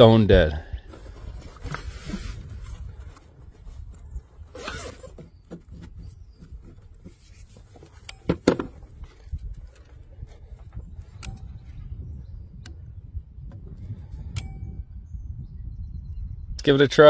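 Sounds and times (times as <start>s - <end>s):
zippered case rustling: 0.9s - 8.1s.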